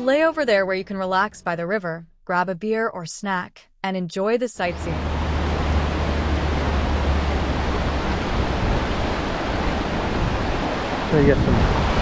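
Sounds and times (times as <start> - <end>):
low rumble: 4.7 - 12.0
whitewater rapids rushing: 4.8 - 12.0.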